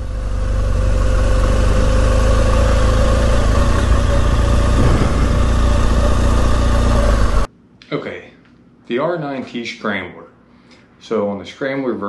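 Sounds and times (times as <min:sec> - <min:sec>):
motorcycle engine running: 0:00.0 - 0:07.5.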